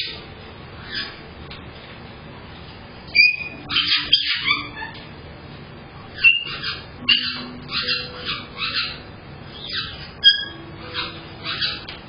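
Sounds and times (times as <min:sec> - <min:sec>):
parrots squawking and chirping: 0:00.0 - 0:00.2, 0:00.8 - 0:01.2, 0:03.2 - 0:05.2, 0:06.1 - 0:12.0.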